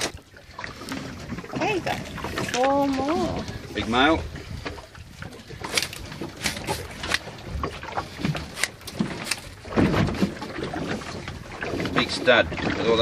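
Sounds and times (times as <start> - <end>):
boat low rumble: 0.0 - 13.0.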